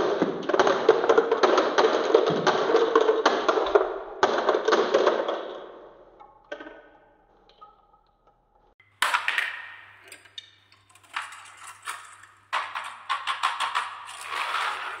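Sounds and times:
glass marbles clattering in plastic: 0:09.0 - 0:15.0.

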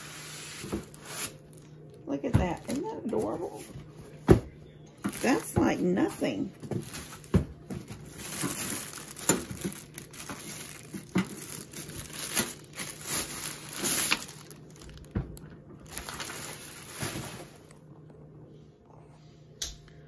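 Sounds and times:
plastic wrapping crinkling: 0:05.0 - 0:17.8.

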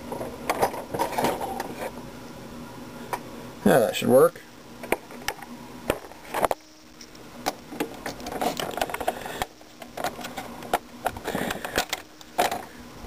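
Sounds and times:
plastic printer parts rattling: 0:07.7 - 0:12.7.

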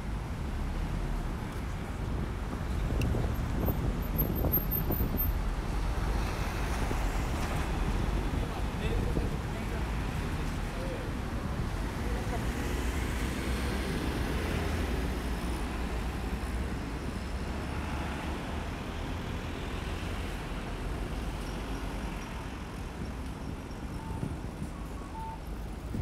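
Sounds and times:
passing cars: 0:00.0 - 0:26.0
heavy low engine rumble: 0:22.4 - 0:26.0.

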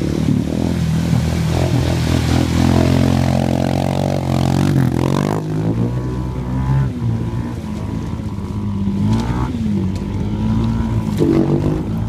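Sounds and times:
atv engine revving: 0:00.0 - 0:12.0
vehicle ploughing through mud: 0:00.0 - 0:12.0.

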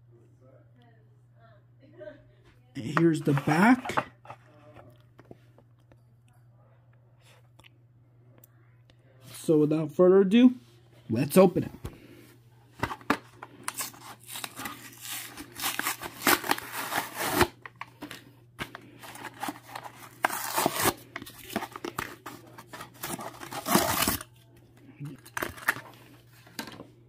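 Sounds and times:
faint low hum: 0:00.0 - 0:27.0
cardboard ripping: 0:13.7 - 0:17.6, 0:19.1 - 0:24.3.

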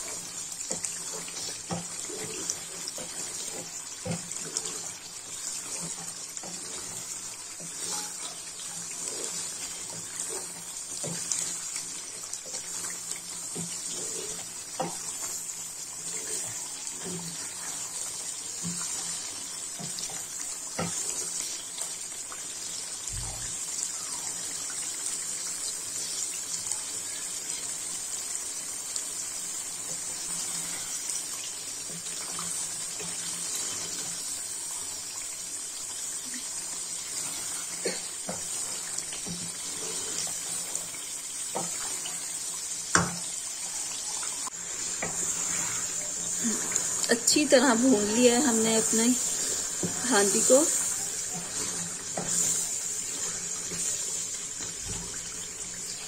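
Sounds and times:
wooden spatula scraping pot: 0:00.0 - 0:21.6, 0:44.6 - 0:55.2
chicken sizzling in oil: 0:00.0 - 0:56.0.

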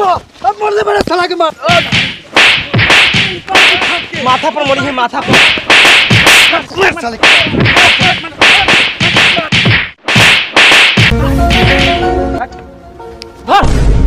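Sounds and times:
whip lashes and slaps: 0:01.8 - 0:04.6, 0:05.2 - 0:12.0.

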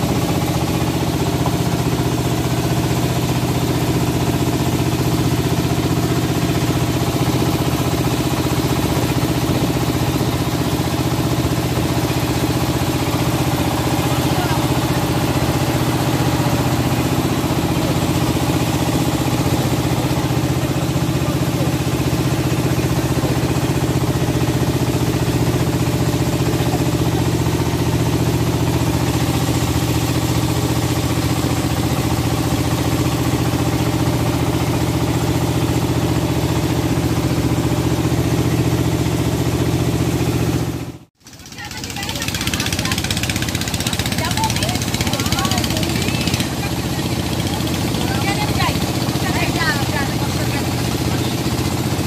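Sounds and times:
water splashing along hull: 0:00.0 - 0:39.9
motorboat engine drone: 0:00.0 - 0:52.0.

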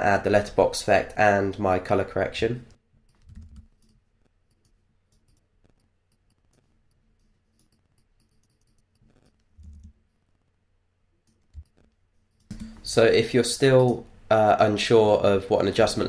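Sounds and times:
mouse and keyboard clicks: 0:03.0 - 0:10.0.

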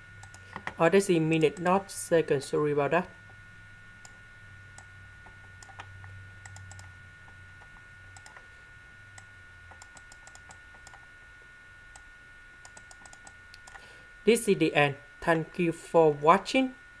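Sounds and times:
faint steady whine: 0:00.0 - 0:17.0
low electrical hum: 0:00.0 - 0:17.0
computer mouse clicks: 0:00.2 - 0:00.8, 0:05.6 - 0:06.9, 0:08.2 - 0:08.4, 0:09.2 - 0:11.0, 0:11.9 - 0:13.8.

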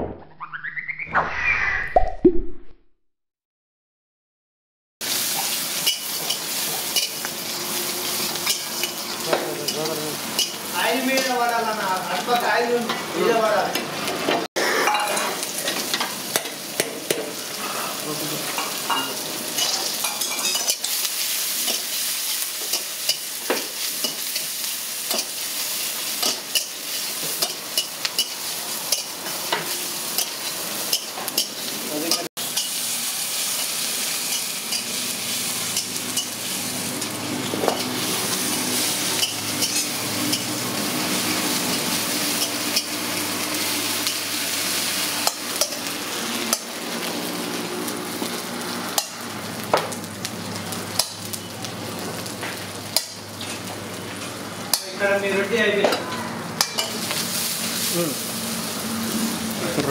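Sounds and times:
food sizzling in hot oil: 0:05.0 - 0:59.9.

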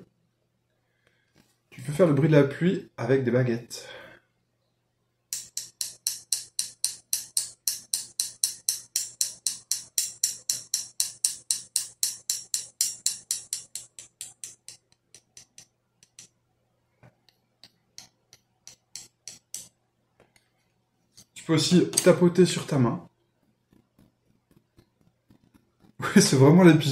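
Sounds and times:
wooden sticks tapping together: 0:05.4 - 0:16.3, 0:17.3 - 0:20.5.

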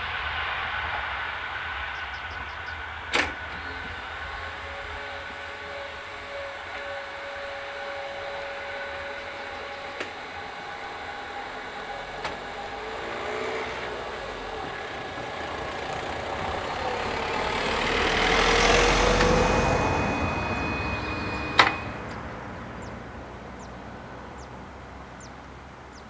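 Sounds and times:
van driving past: 0:00.0 - 0:26.0.

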